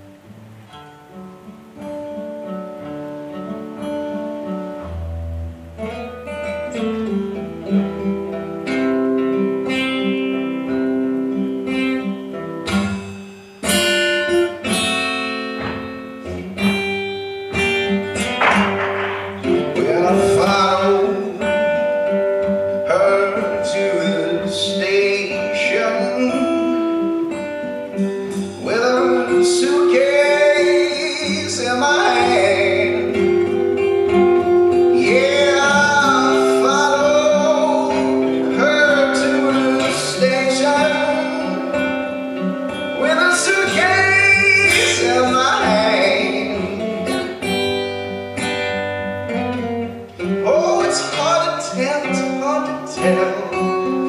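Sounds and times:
picked acoustic guitar: 0.0s - 54.0s
drums: 12.6s - 22.9s
person singing: 19.4s - 22.1s, 22.7s - 27.3s, 28.4s - 47.4s, 50.4s - 54.0s.

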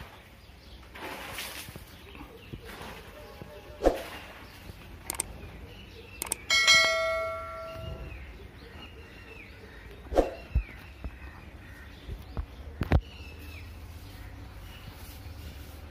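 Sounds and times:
birds chirping: 0.0s - 15.9s
bell ringing: 6.5s - 8.1s.

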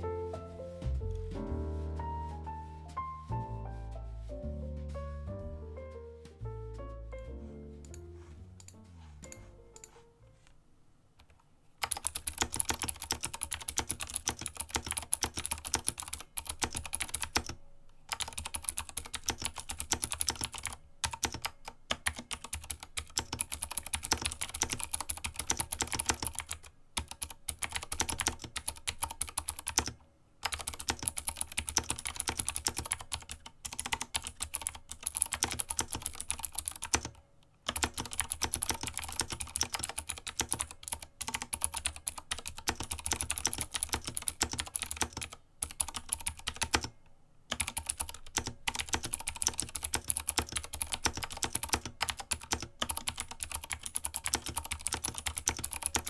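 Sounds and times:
clicky mechanical keyboard typing: 11.2s - 56.0s.

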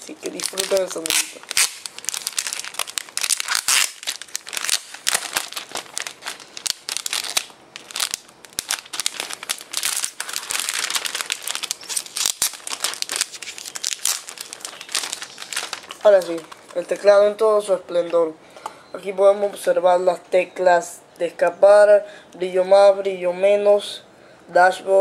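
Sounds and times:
plastic film crinkling: 0.0s - 17.3s.

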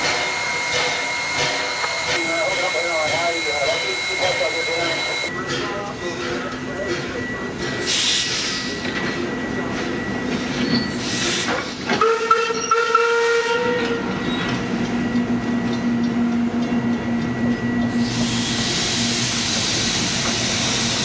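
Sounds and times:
steam train running past: 0.0s - 21.0s
steam whistle blast: 11.5s - 14.1s.

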